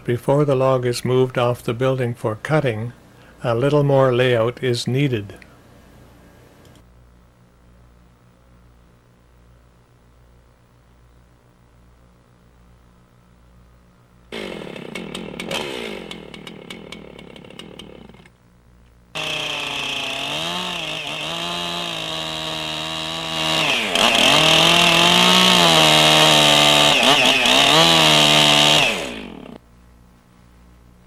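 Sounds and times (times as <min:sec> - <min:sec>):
chainsaw cutting log: 0:14.3 - 0:18.3, 0:19.2 - 0:29.6.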